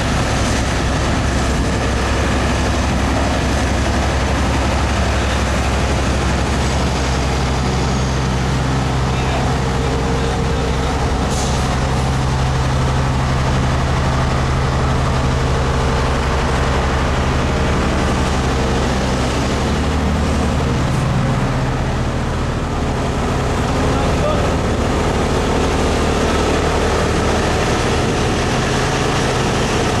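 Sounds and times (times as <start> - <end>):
heavy diesel engines running: 0.0 - 30.0.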